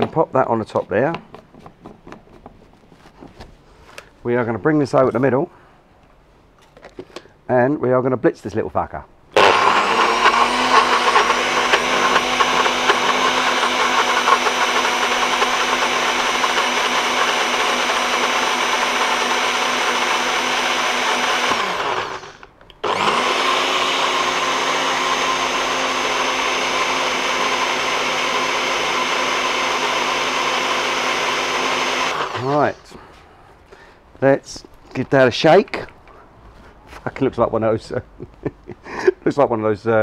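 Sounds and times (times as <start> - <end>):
blender motor running: 9.4 - 32.8.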